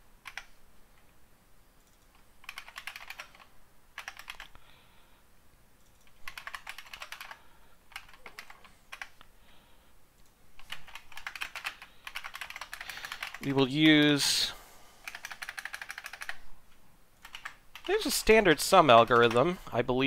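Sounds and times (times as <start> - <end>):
typing on a keyboard: 0.2 - 0.5, 1.8 - 4.6, 5.8 - 9.3, 10.6 - 13.5, 15.1 - 16.4, 17.2 - 18.0.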